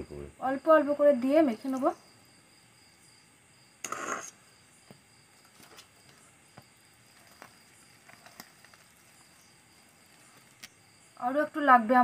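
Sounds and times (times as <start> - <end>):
short noisy burst: 3.8 - 4.4.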